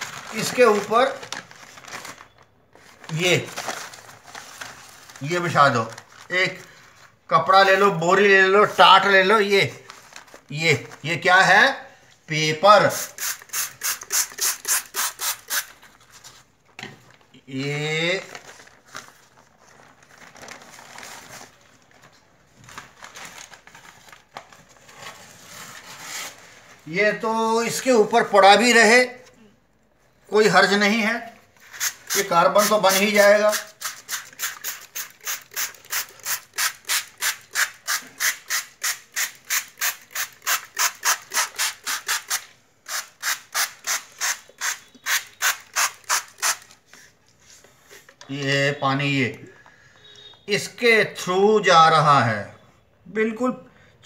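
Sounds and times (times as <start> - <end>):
newspaper rustling and crinkling: 0.0 - 7.9, 8.6 - 11.3, 15.6 - 17.4, 18.0 - 28.2
spray bottle spritzing: 12.9 - 15.8, 31.7 - 46.8.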